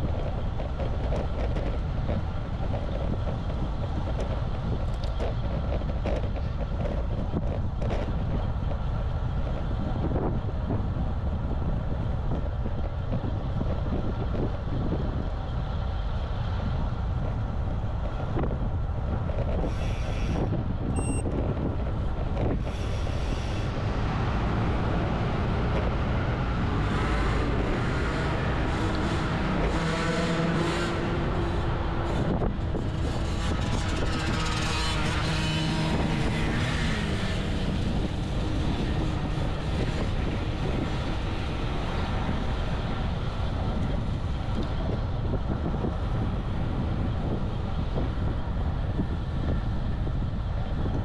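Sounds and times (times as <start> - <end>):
wind noise on microphone: 0.0 - 51.0
bike tyres hissing on road: 19.6 - 20.5, 22.5 - 23.9
vehicle engine passing: 22.7 - 43.4.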